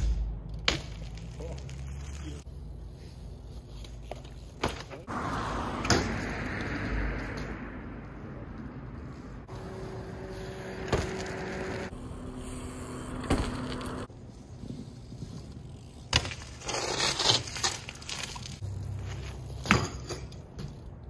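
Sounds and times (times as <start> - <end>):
bike clicks and knocks: 0.0 - 2.4, 3.7 - 5.1, 5.8 - 6.7, 10.8 - 11.9, 13.2 - 21.0
bike landing impacts: 0.0 - 2.4, 3.6 - 5.1, 5.8 - 6.3, 10.3 - 11.9, 13.1 - 21.0.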